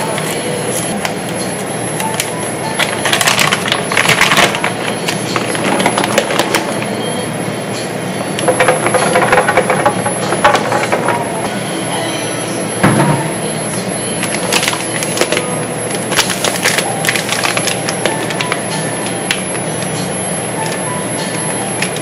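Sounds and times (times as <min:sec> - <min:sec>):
plastic bag crinkling: 0:00.0 - 0:06.9, 0:14.1 - 0:19.9
steady background hum: 0:00.0 - 0:22.0.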